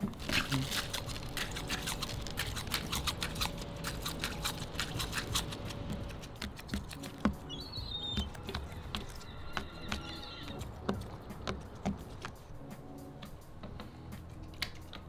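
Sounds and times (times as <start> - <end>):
mealworms rattling: 0.0 - 9.0
low wind rumble: 0.0 - 15.0
bird chirp: 7.2 - 10.6.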